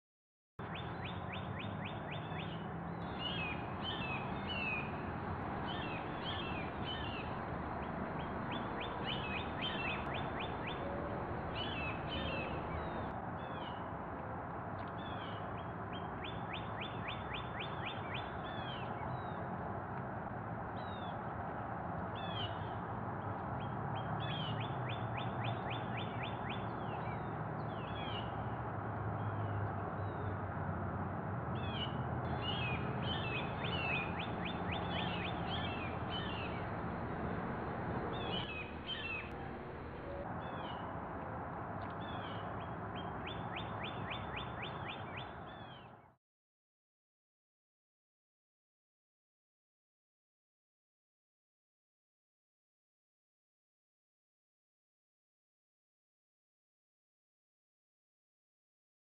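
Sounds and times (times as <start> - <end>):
small birds singing and chirping: 0.6 - 13.8, 14.8 - 19.4, 23.4 - 28.5, 31.6 - 40.9, 41.8 - 46.0.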